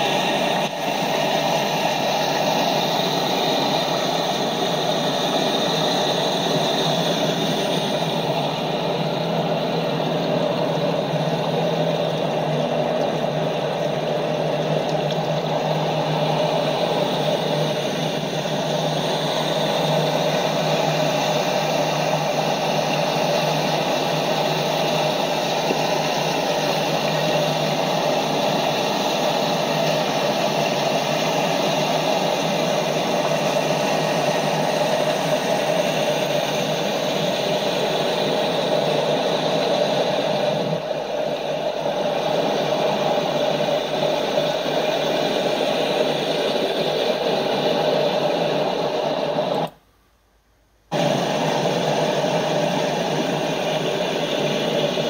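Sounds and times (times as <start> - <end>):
fast river water rushing: 0.0 - 49.7.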